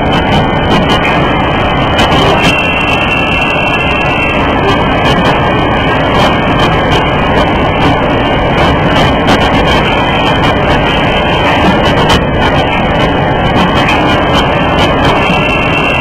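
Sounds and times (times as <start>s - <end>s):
machine mechanical din: 0.0s - 16.0s.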